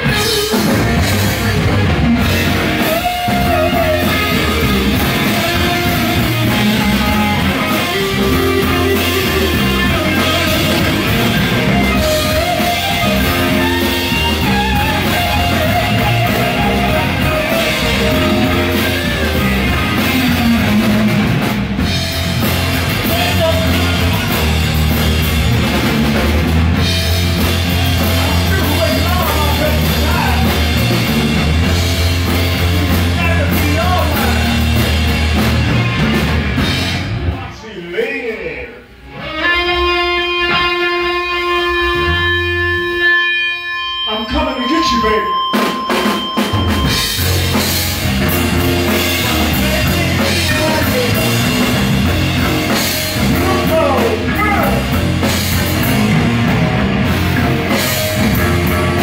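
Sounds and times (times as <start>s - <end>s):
drum kit: 0.0s - 37.6s, 38.8s - 59.0s
electric guitar: 0.0s - 37.6s, 38.7s - 59.0s
bass guitar: 0.0s - 59.0s.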